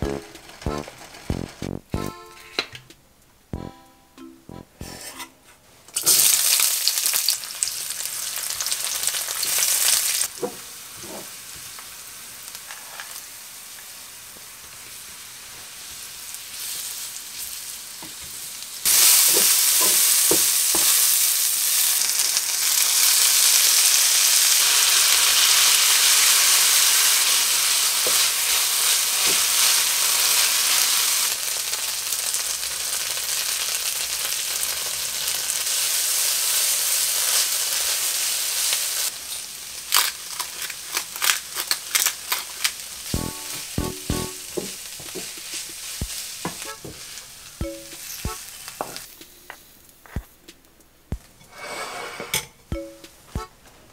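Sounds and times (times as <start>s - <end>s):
food sizzling in hot oil: 6.0s - 49.2s
wooden spatula knocking on pan: 43.2s - 45.6s.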